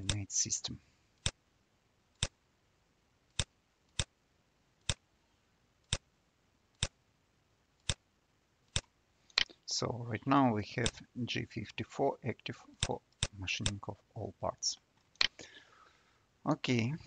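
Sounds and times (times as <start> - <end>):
computer mouse clicking: 2.2 - 2.4, 4.8 - 5.0, 6.8 - 7.0.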